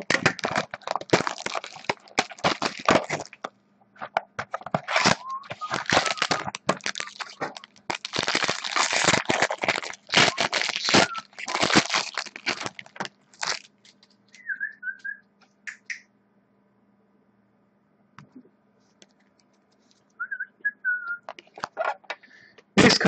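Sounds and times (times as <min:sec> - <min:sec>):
plastic shrink wrap crinkling: 0:00.0 - 0:14.2.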